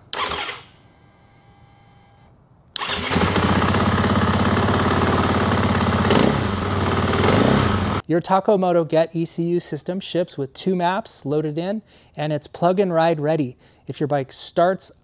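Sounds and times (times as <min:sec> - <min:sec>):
motorcycle engine starting and idling: 0:00.1 - 0:00.8, 0:02.8 - 0:08.0.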